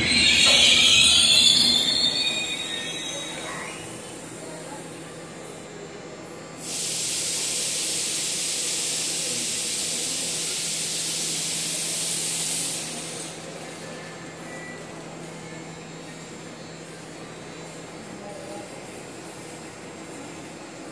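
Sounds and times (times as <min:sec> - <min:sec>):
low train hum: 0:00.0 - 0:20.9
compressed air hissing: 0:06.6 - 0:13.3.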